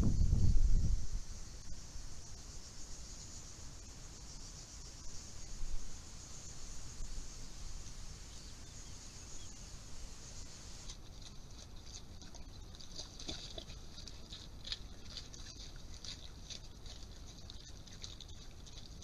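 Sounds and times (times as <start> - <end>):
steady microphone hiss: 0.0 - 10.9
boars crunching and chewing: 10.7 - 19.0.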